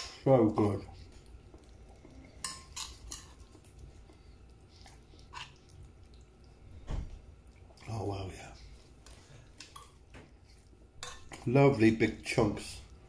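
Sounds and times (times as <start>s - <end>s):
fork clinking against plate: 2.4s - 3.5s.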